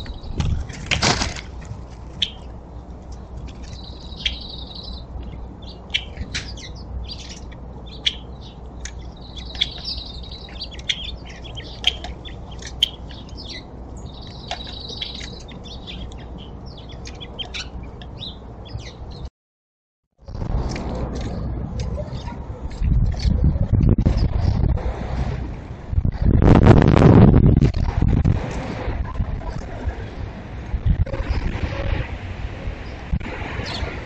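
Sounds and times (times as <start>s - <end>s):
trilled bird song: 0.0s - 0.8s, 2.0s - 19.3s, 21.1s - 24.5s, 32.8s - 34.0s
songbirds chirping: 0.0s - 19.3s, 21.2s - 22.8s.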